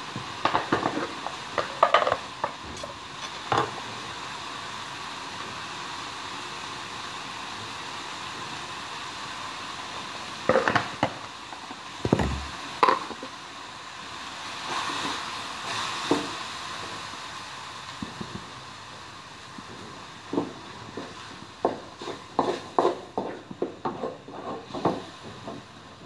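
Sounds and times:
food sizzling in a wok: 0.0 - 26.0
wooden spatula scraping a wok: 0.5 - 3.8, 20.4 - 25.8
sharp knocks and clatters: 12.0 - 13.2.

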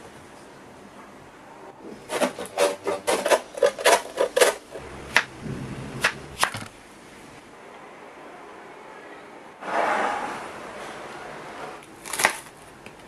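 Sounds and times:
grater rasping: 2.0 - 4.8.

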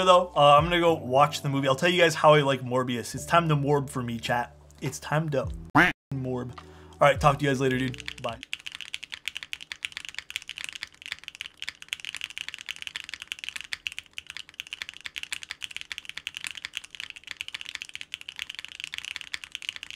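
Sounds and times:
fast mechanical keyboard typing: 7.4 - 19.9.

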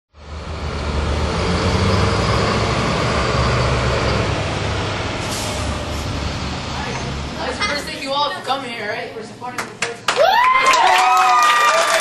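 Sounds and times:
vehicle engines rumbling: 0.1 - 10.1
traffic hiss: 3.5 - 8.0.

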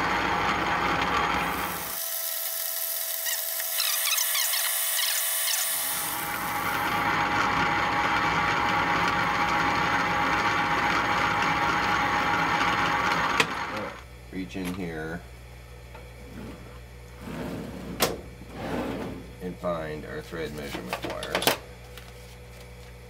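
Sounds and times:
lathe running: 0.0 - 14.0
tool cutting metal thread: 2.4 - 6.2
short high squeaks: 3.2 - 5.8.

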